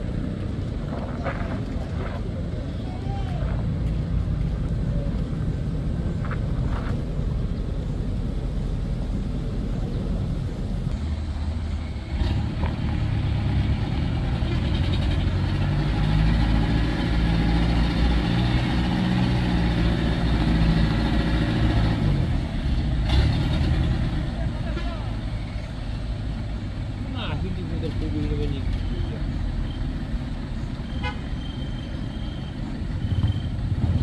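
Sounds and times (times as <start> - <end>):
car engine pulling uphill: 0.0 - 34.0
diesel truck engine under load: 3.6 - 24.6.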